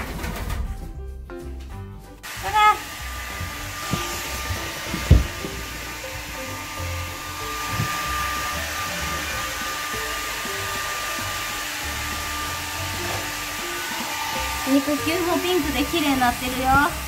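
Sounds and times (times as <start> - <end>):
hair dryer blowing: 2.3 - 17.0
thump: 4.9 - 5.6.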